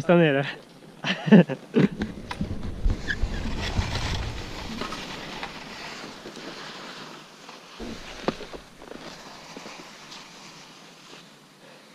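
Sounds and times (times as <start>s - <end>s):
skis scraping over hard snow: 2.0s - 11.4s.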